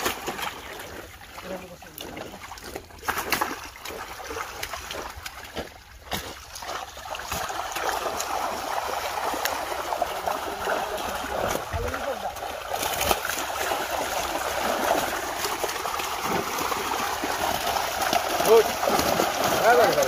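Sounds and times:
fish splashing in water: 0:00.0 - 0:20.0.

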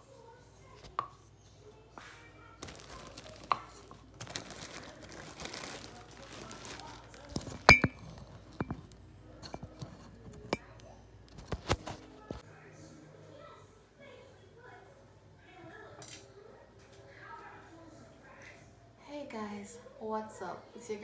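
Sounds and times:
plastic bag crinkling: 0:02.6 - 0:08.9
objects knocking on counter: 0:07.4 - 0:08.8.

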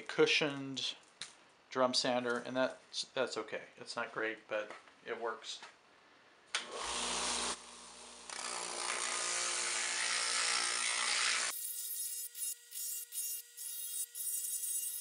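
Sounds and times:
rotary tool motor hum: 0:06.6 - 0:15.0
sander rasping on wood: 0:06.8 - 0:15.0.

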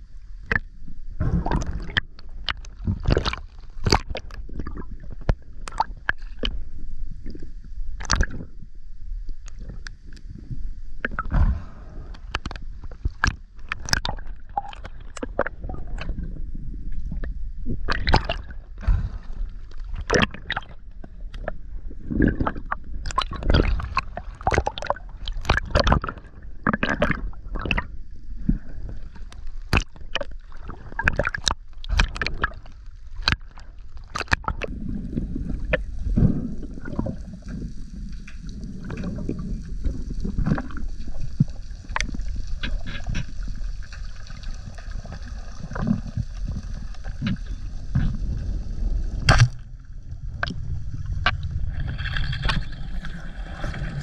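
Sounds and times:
low hum: 0:00.0 - 0:23.1, 0:34.7 - 0:54.0
water swishing and gurgling: 0:00.0 - 0:54.0
steady hiss: 0:34.8 - 0:54.0.

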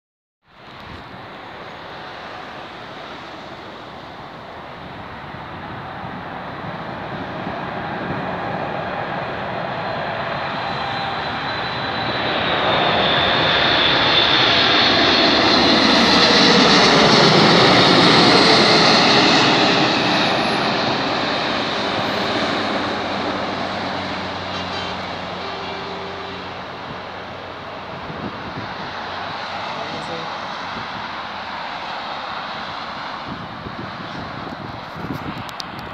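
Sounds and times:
jet engines whining: 0:01.2 - 0:34.7.

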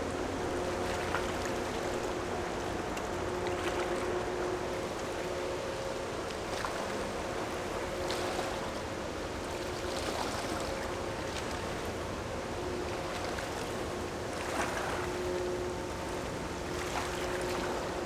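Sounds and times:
faint ship engine hum: 0:00.0 - 0:18.0
moving water: 0:00.0 - 0:18.0
wind: 0:00.0 - 0:18.0.

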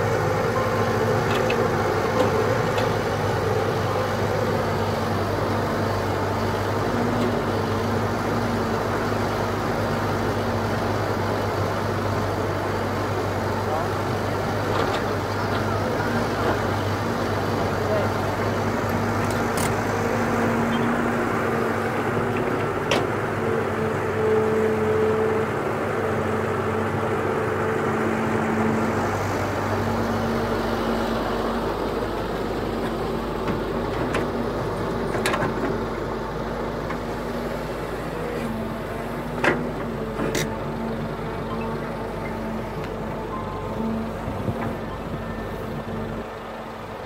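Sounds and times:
excavator diesel engine running: 0:00.0 - 0:47.0.

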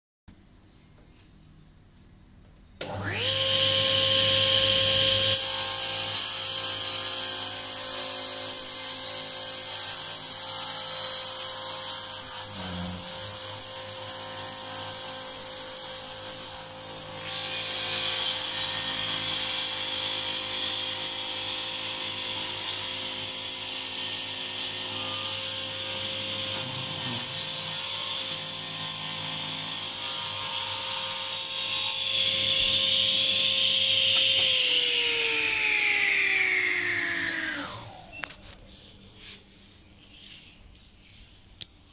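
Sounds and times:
table saw motor running: 0:02.8 - 0:38.2
saw cutting wood hiss: 0:12.2 - 0:13.4
saw spinning down: 0:32.3 - 0:38.4.

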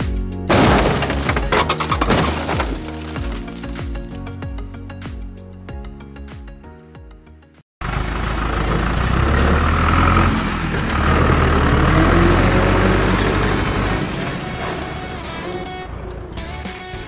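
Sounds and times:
heavy truck engine running: 0:07.8 - 0:16.6.

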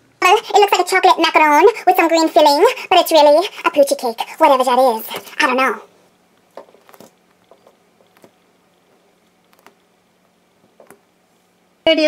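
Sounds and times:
woman speaking: 0:00.2 - 0:05.9.

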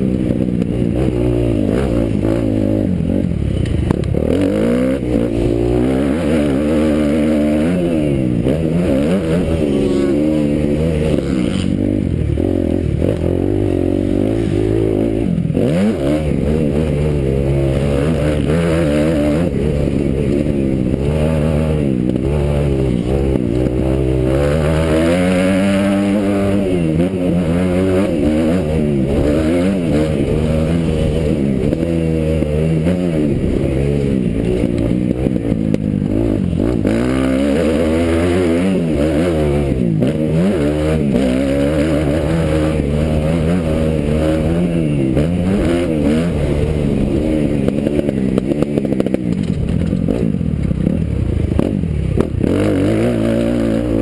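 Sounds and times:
motocross bike engine revving: 0:00.0 - 0:54.0.

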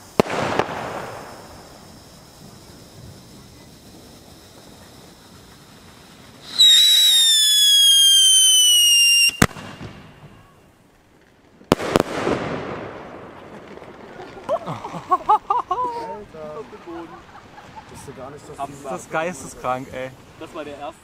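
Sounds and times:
firework bangs: 0:00.0 - 0:15.8
firework whistle falling in pitch: 0:06.4 - 0:10.6.

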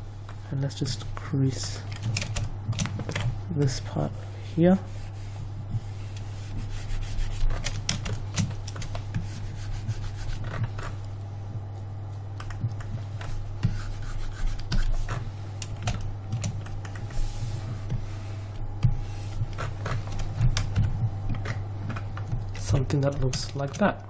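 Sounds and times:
low electrical hum: 0:00.0 - 0:24.0
mouse scratching across pad: 0:09.1 - 0:11.0.

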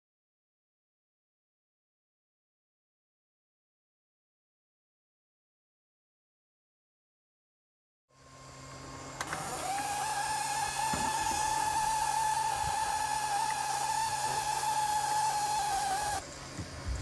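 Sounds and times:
steam hissing with high whine: 0:08.2 - 0:17.0.

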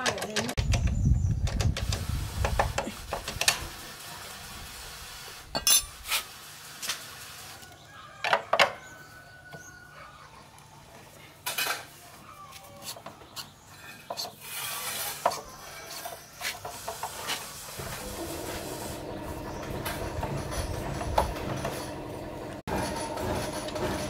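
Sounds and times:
metal hand tools clinking: 0:05.6 - 0:06.0
steady mechanical drone: 0:17.8 - 0:24.0.

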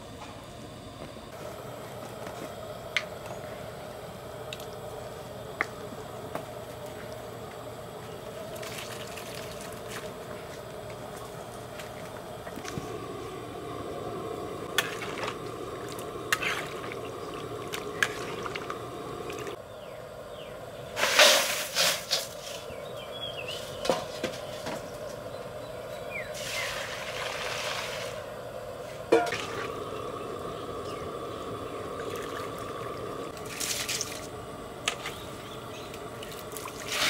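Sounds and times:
steady background noise: 0:00.0 - 0:37.0
metal pots clinking: 0:29.1 - 0:29.7.

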